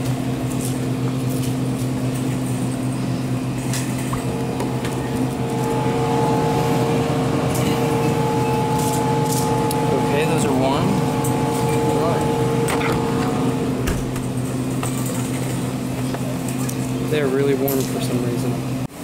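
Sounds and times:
drink coolers humming: 0:00.0 - 0:19.0
high steady tone: 0:04.2 - 0:14.0.

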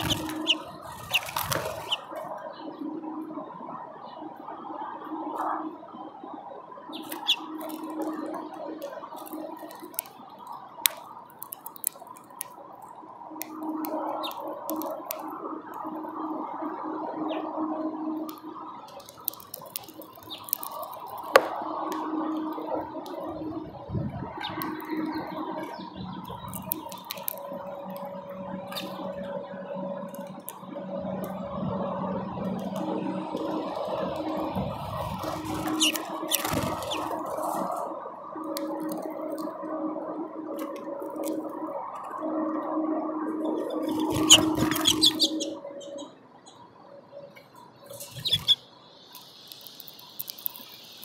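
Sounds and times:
bird pecking and cracking seeds: 0:00.0 - 0:02.4, 0:06.9 - 0:16.1, 0:18.2 - 0:23.2, 0:24.4 - 0:29.4, 0:30.0 - 0:30.6, 0:32.4 - 0:39.6, 0:40.5 - 0:42.2, 0:43.5 - 0:46.0, 0:47.5 - 0:51.0
high bird chirps: 0:00.0 - 0:02.6, 0:06.9 - 0:08.5, 0:14.1 - 0:14.9, 0:35.2 - 0:37.3, 0:43.4 - 0:46.7, 0:47.3 - 0:51.0
steady background hum: 0:00.0 - 0:51.0.

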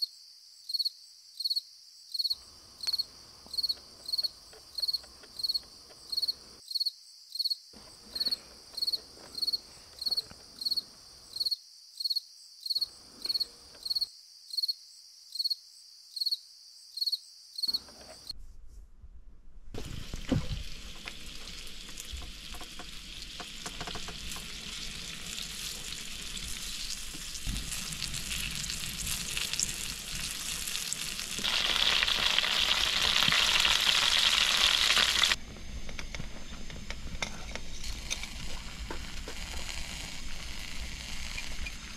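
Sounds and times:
cricket chirping: 0:00.0 - 0:18.3
fish sizzling in a frying pan: 0:19.8 - 0:35.4, 0:38.1 - 0:41.9.

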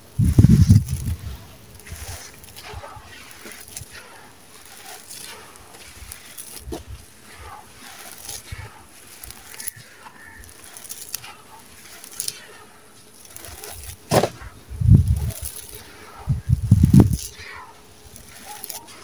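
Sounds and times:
grains and stones pouring: 0:00.0 - 0:12.4
hands crumbling sand-cement mix: 0:00.0 - 0:19.0.

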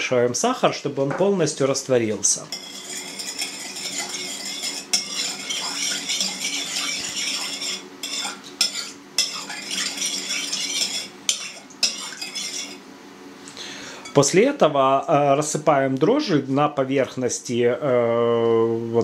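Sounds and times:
metal spoon stirring in bowl: 0:02.5 - 0:12.8.

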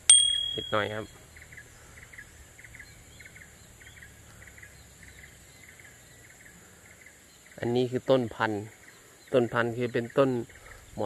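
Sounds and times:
faint higher chirps: 0:00.0 - 0:06.6.

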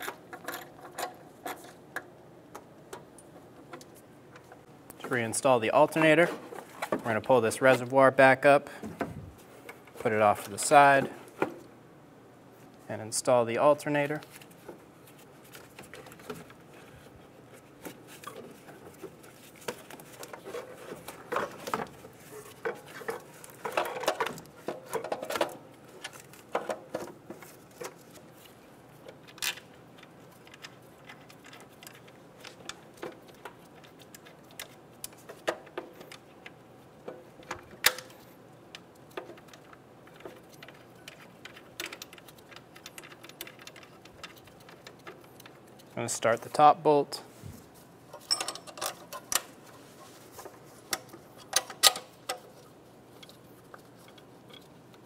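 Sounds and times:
metal clicks knocks and scrapes: 0:00.0 - 0:05.2, 0:29.1 - 0:46.0, 0:48.1 - 0:55.0.

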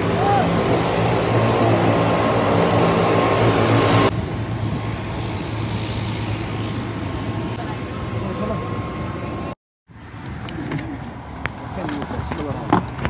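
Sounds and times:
faint high whine: 0:00.0 - 0:09.6
aircraft engines droning: 0:00.0 - 0:12.2.

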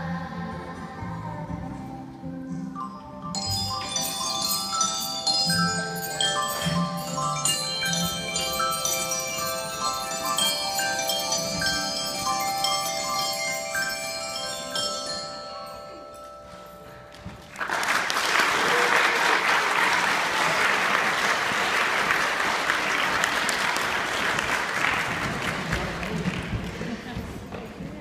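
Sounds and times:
mallet percussion notes ringing: 0:02.7 - 0:18.1
audience applause: 0:17.5 - 0:27.0.

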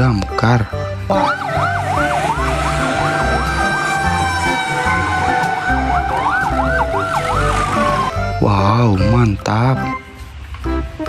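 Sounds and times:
fire truck sirens: 0:01.0 - 0:08.4.

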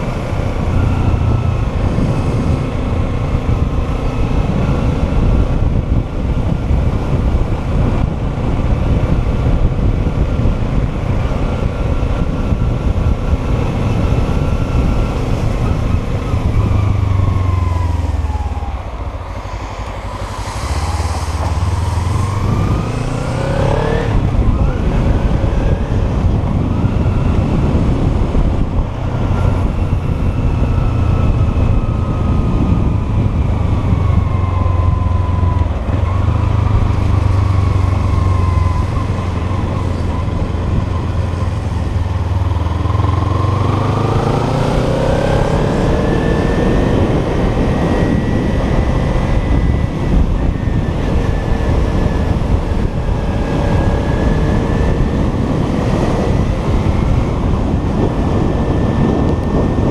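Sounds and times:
motorcycle engine running: 0:00.0 - 0:59.9
wind and road noise: 0:00.0 - 0:59.9.

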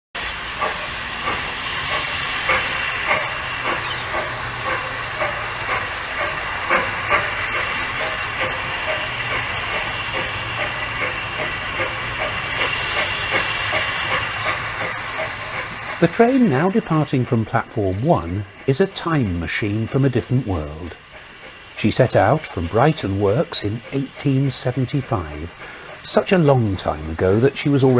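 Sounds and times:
steam hissing: 0:00.2 - 0:27.9
steam locomotive beats: 0:00.2 - 0:27.9.

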